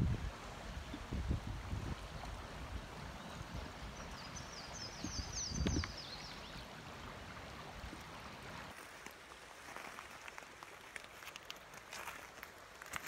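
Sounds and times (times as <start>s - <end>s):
creek water running: 0.0s - 13.0s
songbird chirping: 3.1s - 6.8s.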